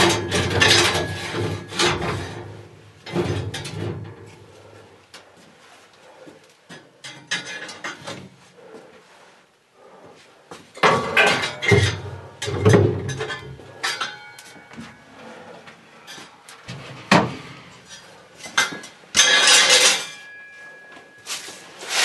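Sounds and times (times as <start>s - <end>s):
tools and stoneware clattering: 0.0s - 2.5s, 10.8s - 14.9s, 18.0s - 21.4s.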